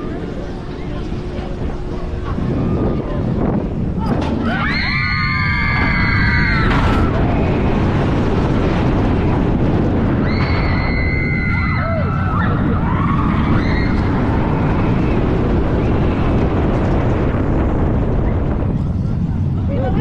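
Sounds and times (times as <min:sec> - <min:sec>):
wind rushing on microphone: 0:00.0 - 0:20.0
riders screaming: 0:04.4 - 0:07.1, 0:10.2 - 0:15.1.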